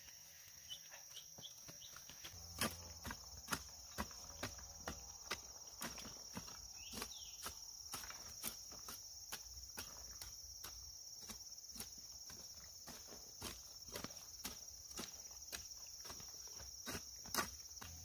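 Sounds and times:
hoe chopping into soil: 2.5s - 9.0s.

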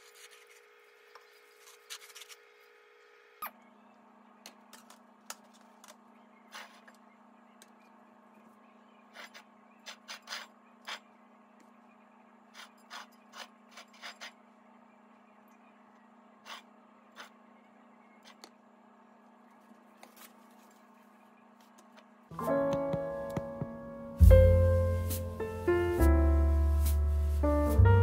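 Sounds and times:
steady low hum: 14.3s - 28.0s.

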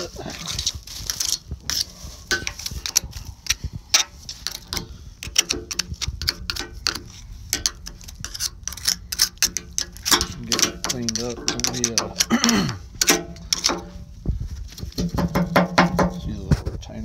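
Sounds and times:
metal tool scraping and clicking: 0.6s - 14.1s.

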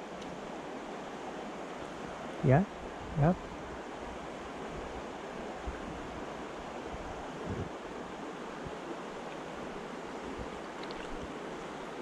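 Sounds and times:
stream flowing over stones: 3.8s - 12.0s.

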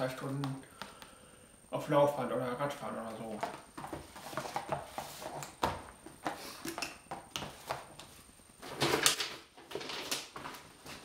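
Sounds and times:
cardboard rustling and scraping: 3.4s - 6.6s.

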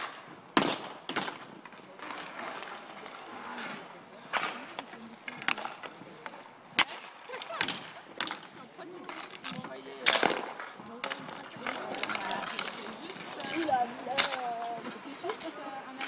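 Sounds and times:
hockey sticks clacking: 0.0s - 16.0s
skate wheels rolling on asphalt: 0.0s - 16.0s.

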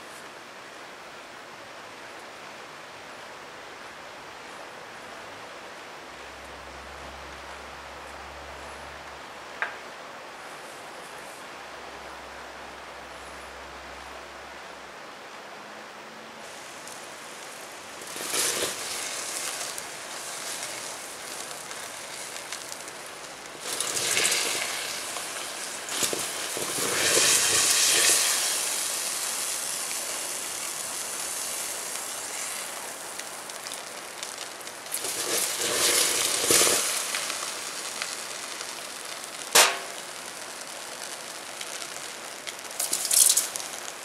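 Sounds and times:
metal burning hissing and crackling: 16.4s - 44.0s.

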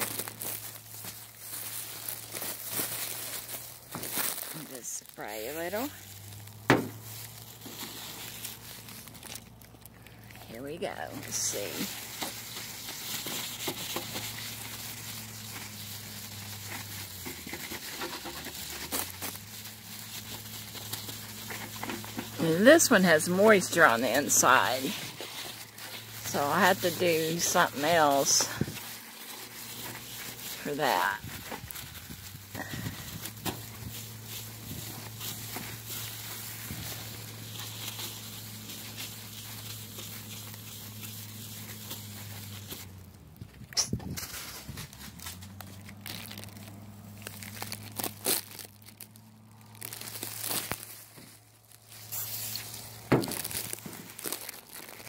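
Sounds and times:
plastic crinkling and rubbing: 0.0s - 55.0s
paper towel wiping plastic: 11.2s - 42.9s.

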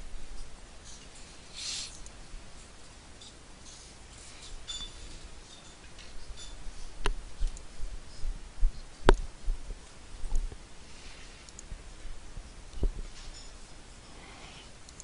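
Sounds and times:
sharp clicks: 9.1s - 10.5s, 11.4s - 11.7s.

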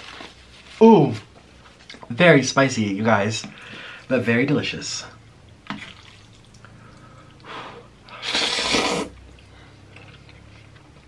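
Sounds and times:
noodles slurped: 8.1s - 10.4s.

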